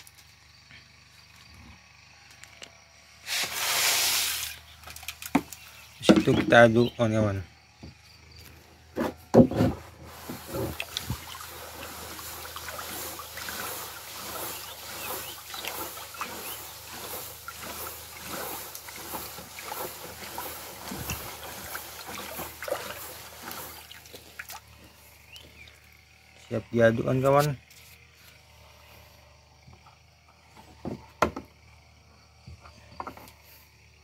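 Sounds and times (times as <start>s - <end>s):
water sloshing in plastic bucket: 3.3s - 6.7s, 9.0s - 26.0s.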